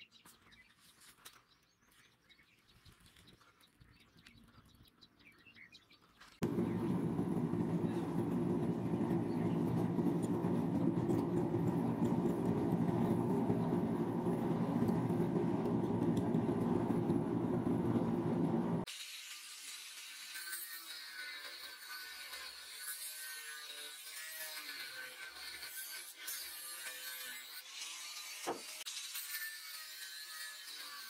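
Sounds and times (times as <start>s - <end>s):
low mechanical drone: 6.4s - 18.9s.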